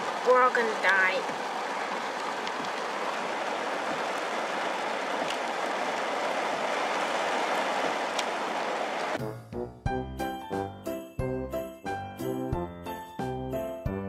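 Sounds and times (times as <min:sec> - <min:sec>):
drops ticking nearby: 0:00.0 - 0:08.4
heavy rain: 0:00.0 - 0:09.2.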